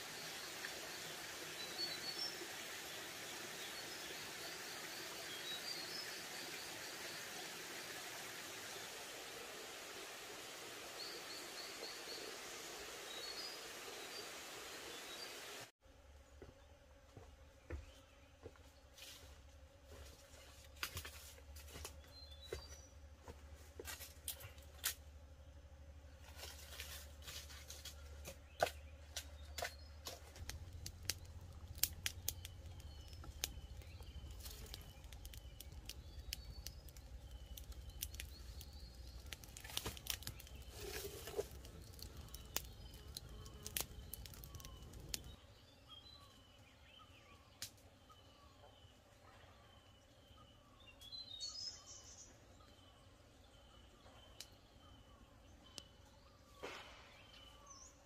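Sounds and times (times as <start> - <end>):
small birds chirping: 27.9 - 58.0
campfire crackling and popping: 30.0 - 45.4.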